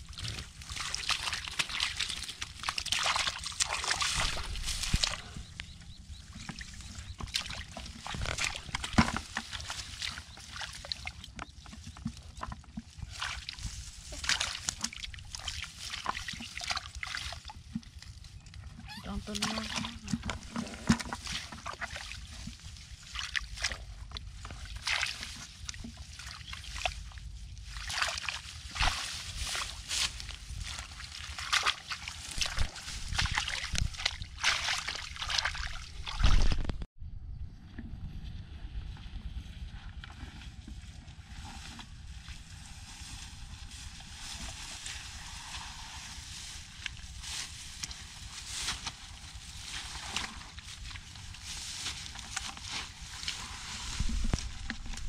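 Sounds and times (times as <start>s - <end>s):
hands splashing in muddy water: 0.0s - 5.4s, 6.2s - 11.4s, 12.0s - 17.7s, 19.1s - 36.8s
footsteps through rustling grass: 0.0s - 10.6s, 28.7s - 36.5s, 40.4s - 55.0s
wind rumbling on microphone: 3.9s - 21.6s, 28.4s - 31.1s, 32.1s - 55.0s.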